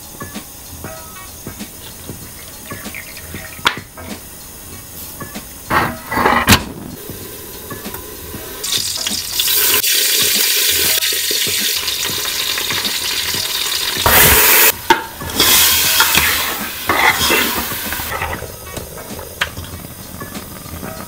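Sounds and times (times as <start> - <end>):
food sizzling in hot fat: 0.0 - 21.0
metal ladle scraping a pot: 5.7 - 9.8, 14.0 - 21.0.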